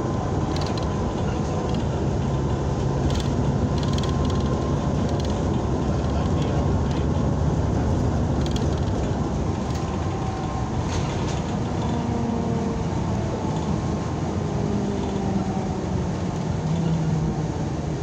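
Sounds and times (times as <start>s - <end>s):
bus engine and road rumble: 0.0s - 18.0s
drivetrain whine: 0.0s - 18.0s.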